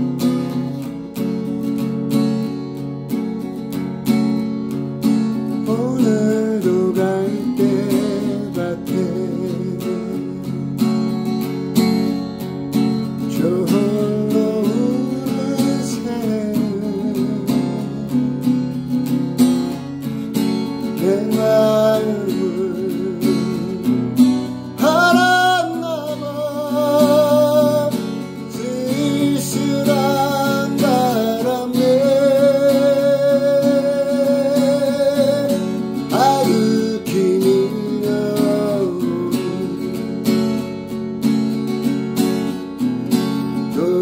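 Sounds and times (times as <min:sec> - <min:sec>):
acoustic guitar strumming: 0:00.0 - 0:44.0
man singing ballad: 0:05.5 - 0:10.7, 0:13.2 - 0:18.5, 0:20.7 - 0:40.5, 0:43.6 - 0:44.0.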